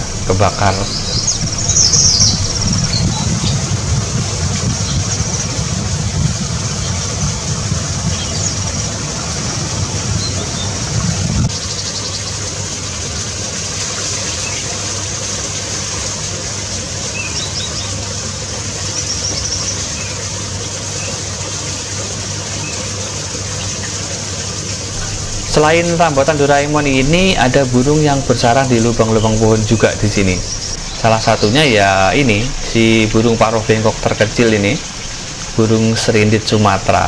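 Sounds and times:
low hum: 0.0s - 11.5s, 24.9s - 37.0s
sprinkler rain through foliage: 0.0s - 37.0s
bird chirps: 0.1s - 3.6s.

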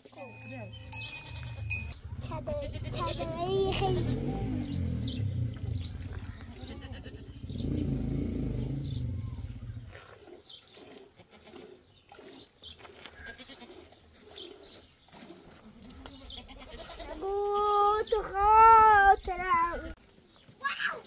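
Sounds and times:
goats bleating: 1.0s - 4.3s, 6.4s - 7.5s, 11.1s - 11.7s, 13.2s - 13.9s, 16.0s - 18.7s
low rumble: 1.1s - 10.0s.

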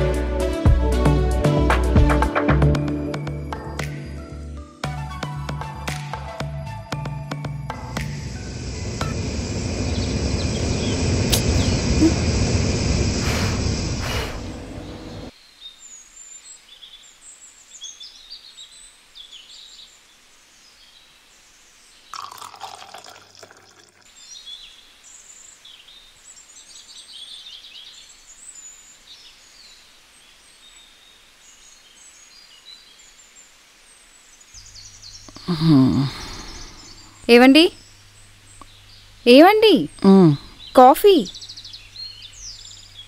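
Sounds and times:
loud sound cutting off: 7.3s - 15.3s
small birds chirping: 7.9s - 43.0s.

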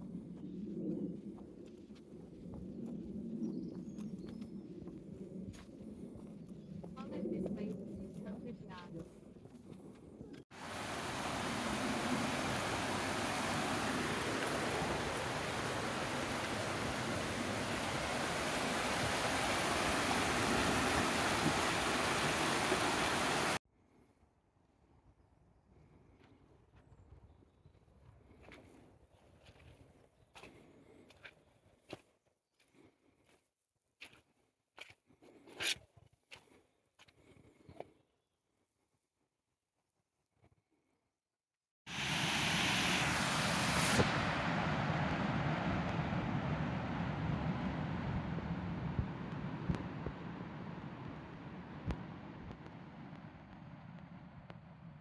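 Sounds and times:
wind buffeting microphone: 0.0s - 23.6s
stream rushing over stones: 10.5s - 23.6s, 41.9s - 47.7s.

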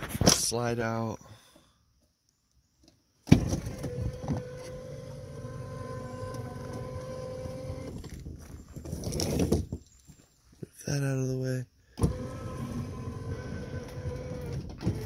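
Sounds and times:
electric motor hum: 3.5s - 8.1s, 12.0s - 15.0s.

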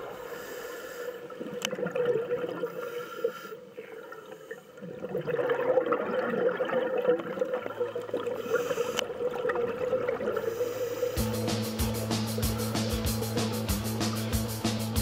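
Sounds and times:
underwater bubbling: 0.0s - 11.2s.

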